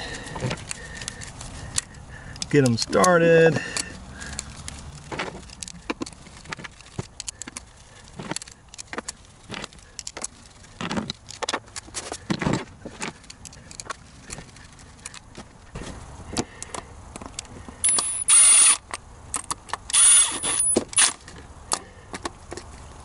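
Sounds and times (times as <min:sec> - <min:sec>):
screwdriver and screws clicking: 0:00.4 - 0:12.4, 0:16.4 - 0:21.8
screwdriver scraping: 0:17.8 - 0:18.8, 0:19.9 - 0:21.2.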